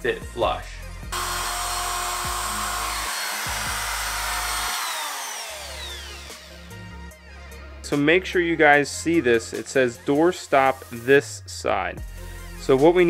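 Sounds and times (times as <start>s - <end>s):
electric router routing wood: 1.1s - 6.8s.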